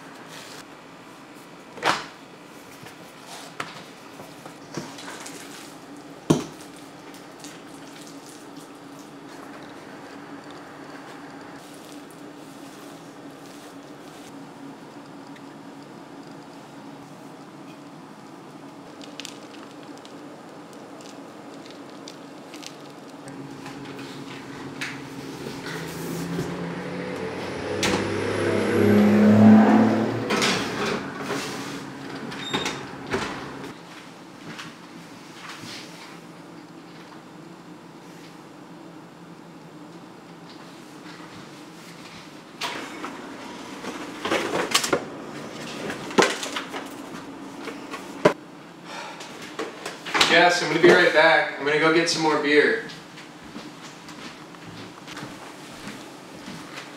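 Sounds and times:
steady low hum: 0:00.0 - 0:29.0
dough squishing: 0:18.5 - 0:26.6
refrigerator door opening: 0:30.3 - 0:33.7.

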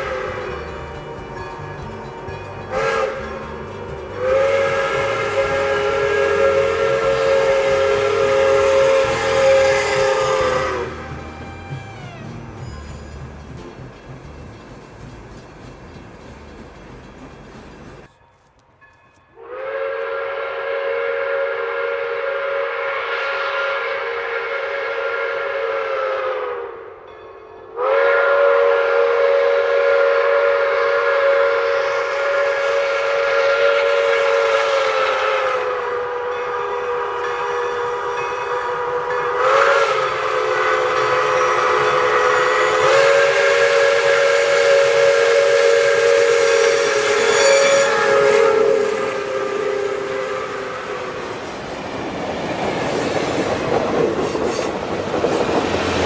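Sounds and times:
steam locomotive whistle: 0:00.0 - 0:13.7, 0:19.3 - 0:27.1, 0:27.7 - 0:52.2
train wheel clatter: 0:00.0 - 0:19.4, 0:31.8 - 0:56.0.

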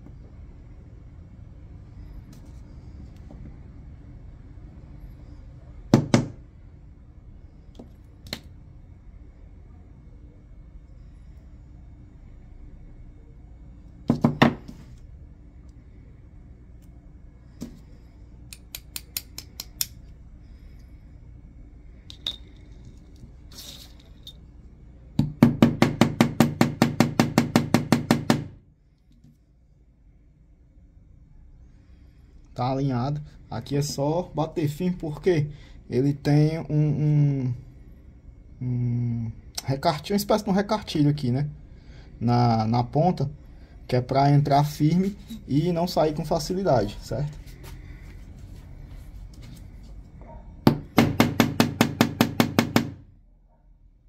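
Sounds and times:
sharp knocks on workbench: 0:14.1 - 0:14.7
small hammer tapping a pin: 0:18.5 - 0:20.0.

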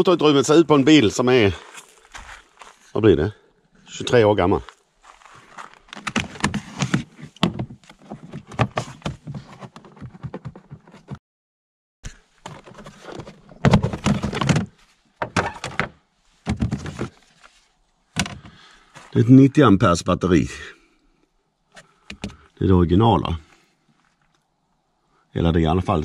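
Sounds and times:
plastic covers clicking and clunking: 0:05.9 - 0:11.2, 0:12.4 - 0:17.5, 0:18.2 - 0:18.6.

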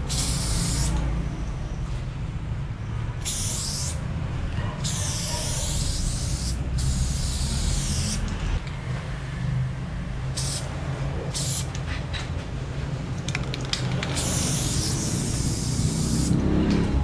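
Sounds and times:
spray paint can hissing: 0:00.0 - 0:01.0, 0:03.2 - 0:04.0, 0:04.8 - 0:08.4, 0:10.3 - 0:10.7, 0:11.3 - 0:11.8, 0:14.0 - 0:16.4.

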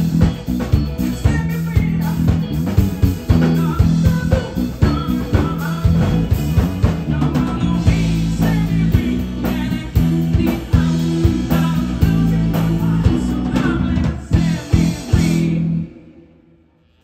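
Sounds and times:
live rock band playing: 0:00.0 - 0:16.1
lead vocal singing: 0:03.3 - 0:16.6.

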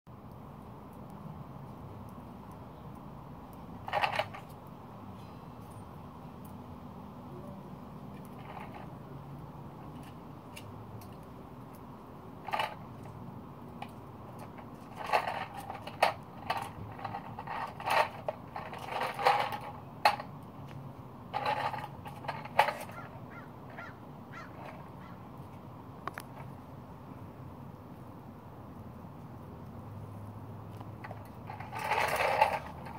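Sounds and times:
plastic and seeds rattling: 0:03.8 - 0:04.7, 0:13.8 - 0:20.4, 0:21.3 - 0:24.8, 0:30.9 - 0:32.9.

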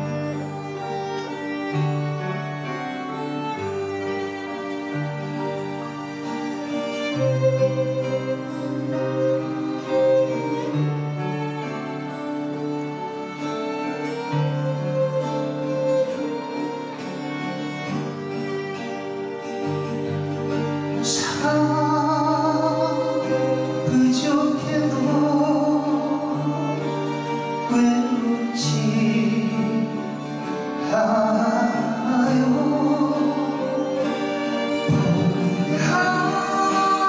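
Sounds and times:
slow gospel band playing: 0:00.0 - 0:37.0
person singing: 0:21.0 - 0:37.0.

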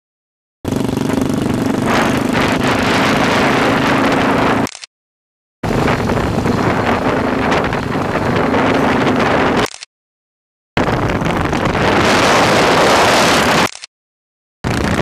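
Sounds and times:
motorcycle engines at speed: 0:00.7 - 0:04.7, 0:05.6 - 0:09.7, 0:10.8 - 0:13.7
wind noise on microphone: 0:00.9 - 0:04.7, 0:05.6 - 0:09.8, 0:10.8 - 0:13.8, 0:14.6 - 0:15.0.

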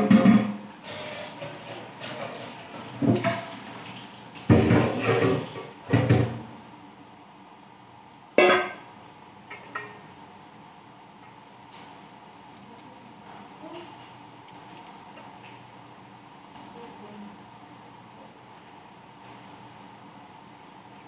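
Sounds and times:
kitchen clatter: 0:00.0 - 0:06.5, 0:08.4 - 0:08.9, 0:09.5 - 0:10.1.

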